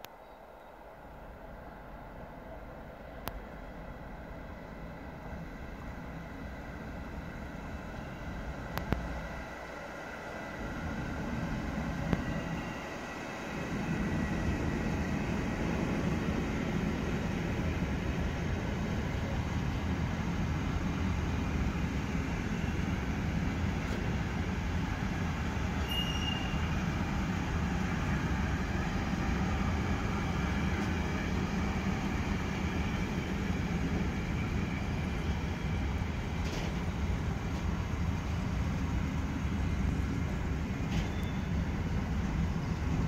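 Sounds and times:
freight train wheels rumbling: 0.0s - 43.0s
high wheel squeal: 25.8s - 26.7s.

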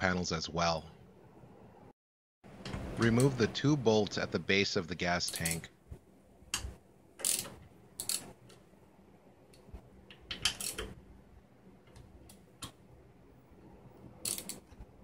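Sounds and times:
socket ratchet clicking: 6.6s - 8.6s, 10.1s - 11.0s, 14.2s - 14.8s.

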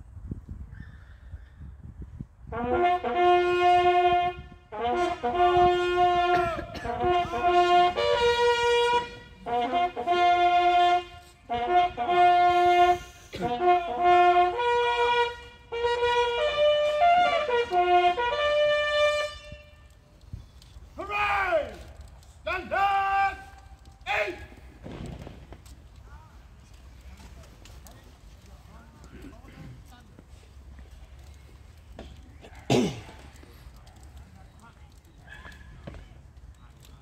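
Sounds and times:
bugle call: 2.5s - 19.9s.

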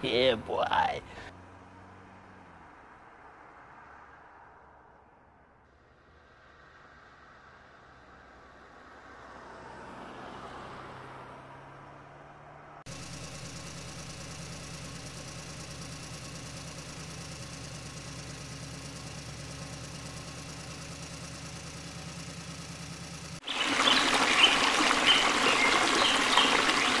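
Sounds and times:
small engine idling: 12.9s - 27.0s
splashing water: 23.4s - 27.0s.

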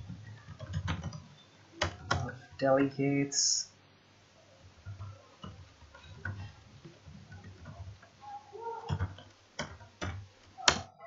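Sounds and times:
computer keyboard keystrokes: 0.0s - 2.3s.

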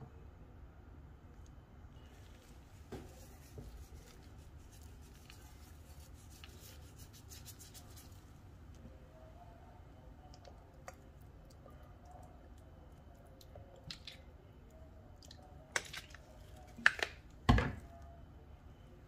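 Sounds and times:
seasoning sprinkled onto fish: 2.1s - 8.4s.

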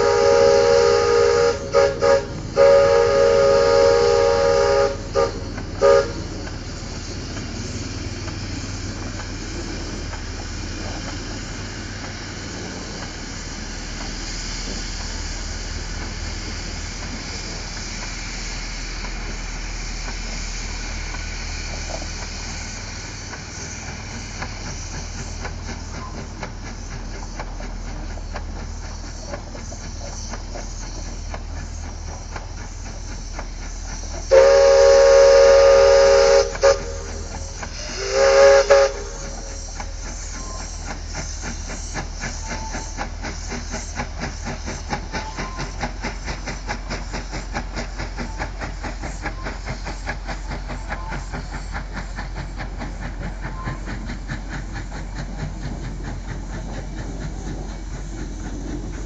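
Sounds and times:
steam whistle blasts: 0.0s - 6.4s, 34.2s - 41.0s
steam locomotive hissing: 0.0s - 59.0s.

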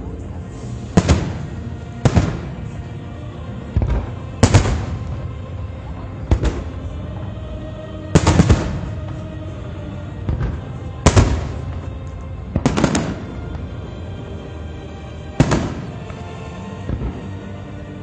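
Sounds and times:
fireworks crackles: 0.5s - 3.1s, 3.7s - 6.9s, 8.1s - 9.4s, 10.2s - 13.8s, 15.3s - 18.0s
fireworks bangs with echo: 0.9s - 2.8s, 3.6s - 5.4s, 6.2s - 6.9s, 8.1s - 9.6s, 10.2s - 13.6s, 15.4s - 16.2s.

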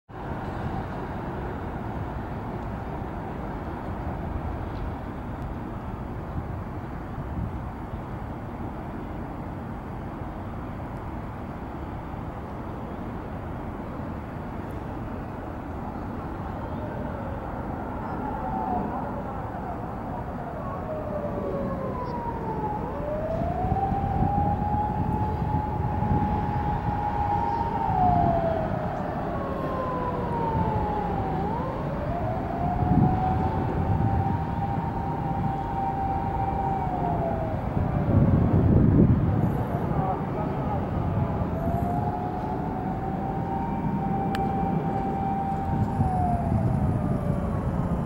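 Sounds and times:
distant road traffic rumble: 0.1s - 48.0s
faint wavering siren: 15.0s - 48.0s.

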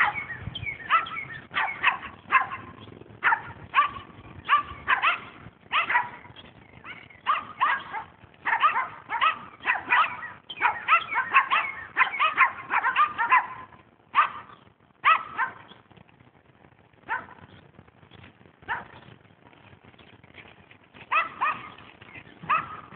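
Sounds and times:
dogs barking high-pitched: 0.0s - 15.7s, 17.1s - 17.4s, 18.7s - 19.0s, 21.1s - 21.8s, 22.4s - 22.9s.

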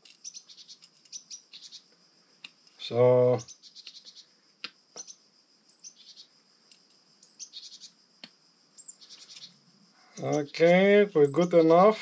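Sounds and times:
high-pitched chirping and trills: 0.0s - 2.0s, 2.8s - 4.4s, 5.0s - 6.4s, 7.2s - 8.0s, 8.7s - 12.0s.

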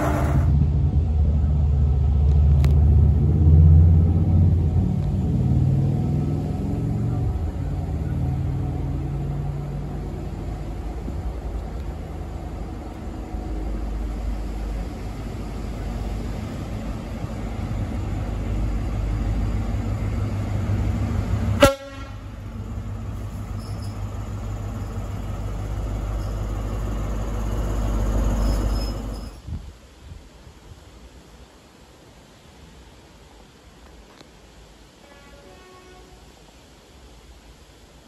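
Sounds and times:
wheel and rail noise: 0.0s - 29.6s
diesel train engine rumble: 0.0s - 29.7s.

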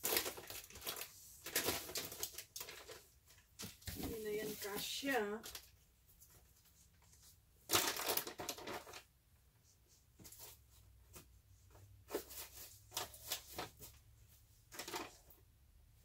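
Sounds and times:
plastic wrappers rustling: 0.0s - 5.8s, 7.7s - 9.1s, 12.0s - 14.0s.

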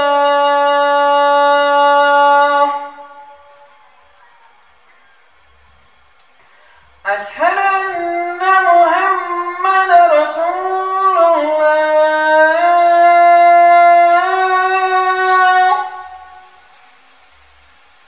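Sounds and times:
man chanting call to prayer: 0.0s - 3.9s, 7.0s - 16.6s.

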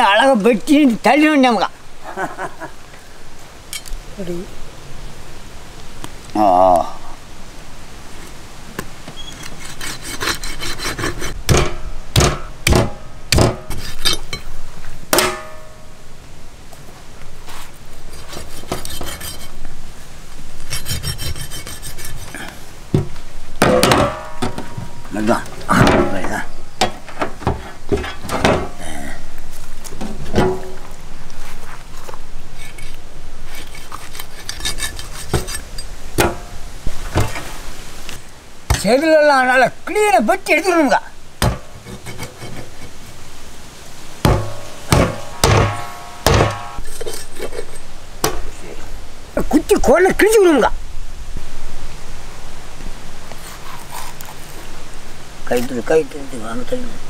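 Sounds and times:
knife scraping on metal tray: 9.2s - 11.4s, 13.7s - 14.4s, 18.1s - 19.6s, 20.7s - 22.4s, 32.6s - 35.8s, 41.8s - 43.2s
knife sawing through fish fin: 9.6s - 11.4s, 20.7s - 22.3s
heavy chopping knocks: 11.5s - 13.7s, 15.1s - 15.6s, 22.9s - 24.9s, 44.2s - 46.8s
metal platter ringing clank: 15.1s - 15.9s, 23.6s - 25.1s, 44.3s - 46.8s.

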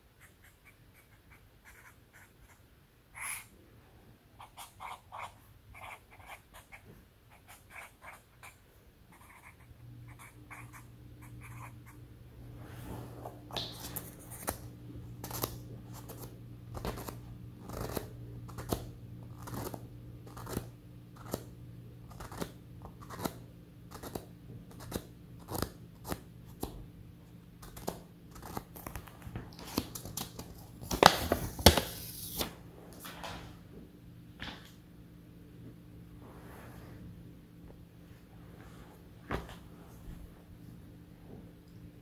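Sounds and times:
marker scratching on paper: 0.1s - 2.6s, 4.4s - 12.0s.

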